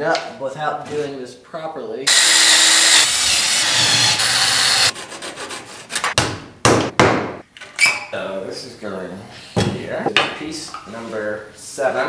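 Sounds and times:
cordless drill boring through wood: 2.1 - 4.9
sharp knocks: 6.2 - 7.4.

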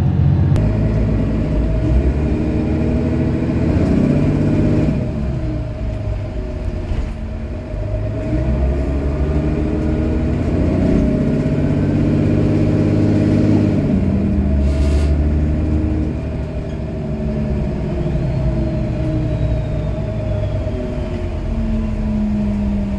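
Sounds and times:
bus engine accelerating: 0.0 - 22.9.

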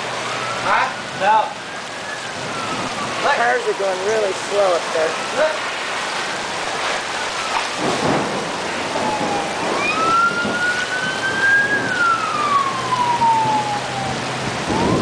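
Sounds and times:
gusting wind: 0.0 - 15.0
heavy rain pouring: 0.0 - 15.0
siren wailing: 0.0 - 15.0.

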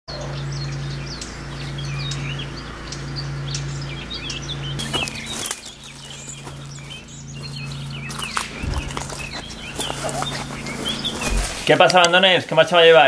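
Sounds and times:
songbirds chirping: 0.1 - 13.0
low steady hum: 4.7 - 12.1.

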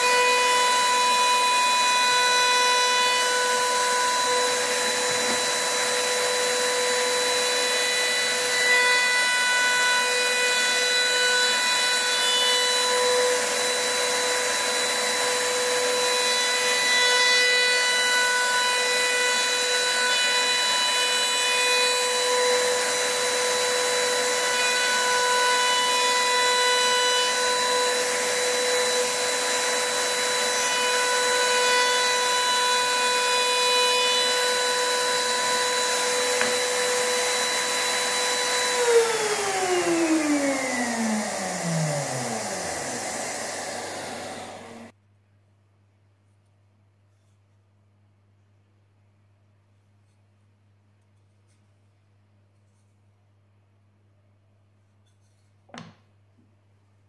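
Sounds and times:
router whining: 0.0 - 44.9.

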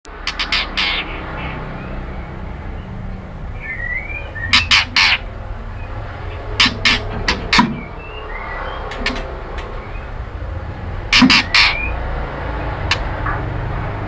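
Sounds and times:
bird giving harsh rasping calls: 0.1 - 2.9, 3.5 - 10.2, 11.0 - 13.1
faint whistled bird chirp: 3.6 - 4.6.

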